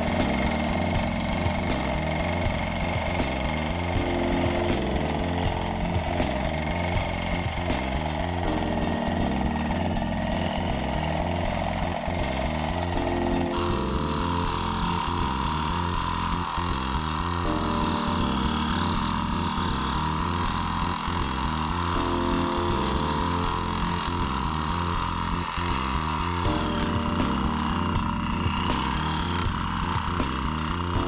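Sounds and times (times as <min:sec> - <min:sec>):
scroll saw cutting wood: 0:00.0 - 0:31.0.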